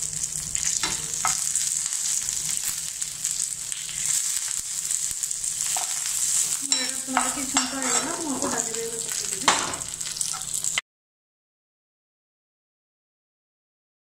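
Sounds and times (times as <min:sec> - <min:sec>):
spices sizzling in hot oil: 0:00.0 - 0:10.8
spatula stirring in pan: 0:03.4 - 0:10.6.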